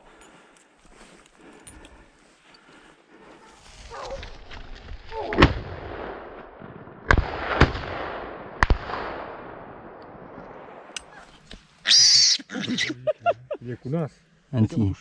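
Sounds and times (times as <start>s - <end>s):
shotgun shots echoing: 7.1s - 10.9s.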